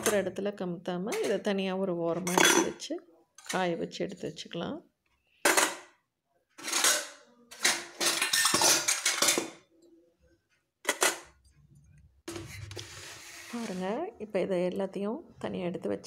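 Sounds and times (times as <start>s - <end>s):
metal lamps and plates clattering: 6.6s - 9.6s.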